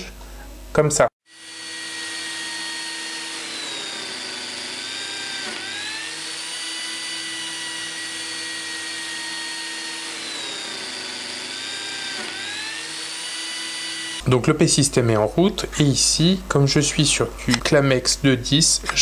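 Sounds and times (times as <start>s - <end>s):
joining machine motor whining: 1.3s - 14.3s.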